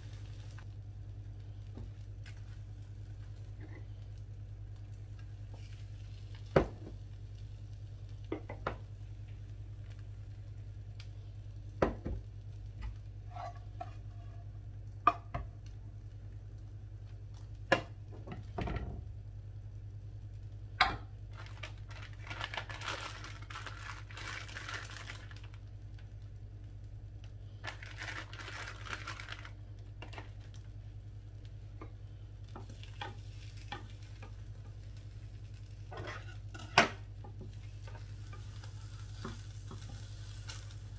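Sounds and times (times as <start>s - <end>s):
hissing sizzle: 0.0s - 40.9s
steady low hum: 0.0s - 40.9s
wooden spatula scraping a frying pan: 13.2s - 14.4s, 35.9s - 36.8s.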